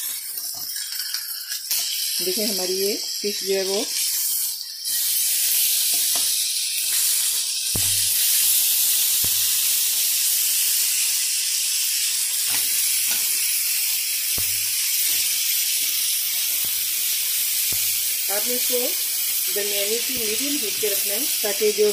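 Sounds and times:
fish sizzling in a frying pan: 0:00.0 - 0:21.9
tongs clicking: 0:14.4 - 0:18.8.

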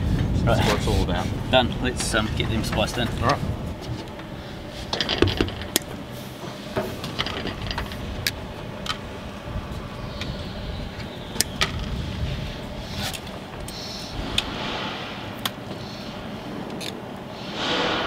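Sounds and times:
steady low rumble: 0:00.0 - 0:18.0
wire strippers clicking: 0:10.9 - 0:12.0.

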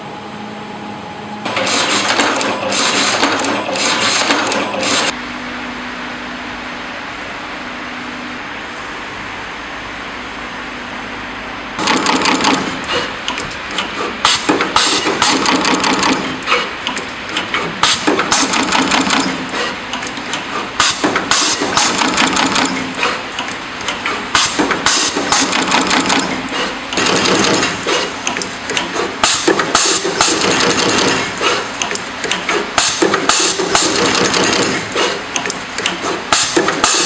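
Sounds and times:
steady mechanical clatter: 0:01.4 - 0:05.2, 0:11.8 - 0:37.0
machine heads and clamps clacking: 0:01.5 - 0:05.1, 0:11.8 - 0:37.0.

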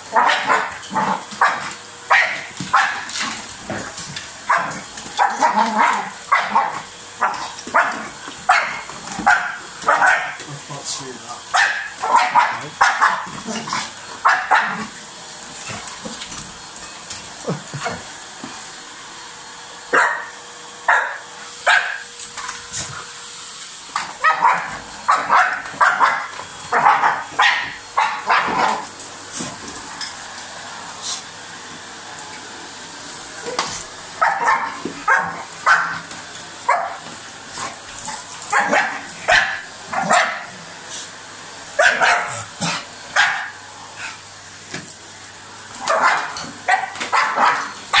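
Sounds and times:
vacuum cleaner: 0:00.0 - 0:48.0
dog barking: 0:00.1 - 0:00.8, 0:01.4 - 0:03.1, 0:04.5 - 0:10.4, 0:11.5 - 0:13.3, 0:14.2 - 0:14.8, 0:19.9 - 0:20.3, 0:20.9 - 0:22.0, 0:24.2 - 0:28.8, 0:34.2 - 0:36.0, 0:36.7 - 0:37.0, 0:38.5 - 0:40.5, 0:41.8 - 0:42.5, 0:43.2 - 0:43.6, 0:45.8 - 0:48.0.

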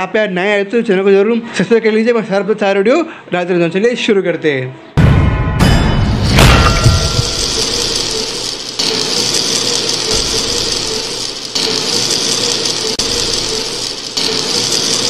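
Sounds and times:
machine-like whirring hum: 0:06.4 - 0:15.0.

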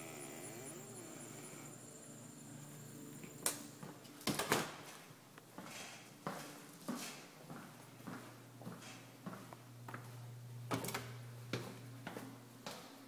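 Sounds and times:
high insect chorus: 0:00.0 - 0:03.5
footsteps on hardwood floor: 0:05.5 - 0:10.2, 0:11.5 - 0:12.9.

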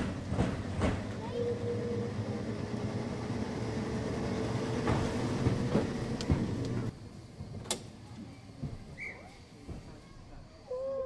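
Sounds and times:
tram wheels rumbling on rails: 0:00.0 - 0:10.6.

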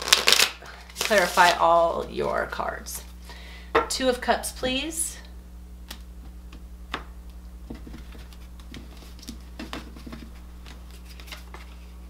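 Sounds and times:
cards shuffling: 0:00.0 - 0:02.4, 0:07.7 - 0:12.0
low electrical hum: 0:00.0 - 0:12.0.

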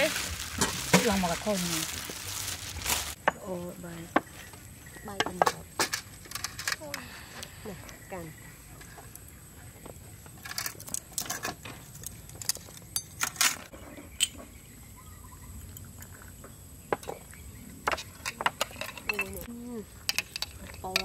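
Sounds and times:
utensils and dishes clinking: 0:17.9 - 0:19.5.

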